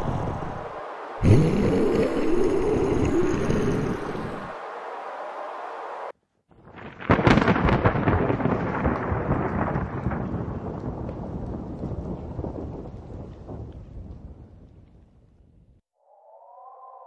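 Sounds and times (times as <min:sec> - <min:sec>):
steady rushing noise: 0:00.0 - 0:06.1
thunder crack and rumble: 0:06.6 - 0:15.7.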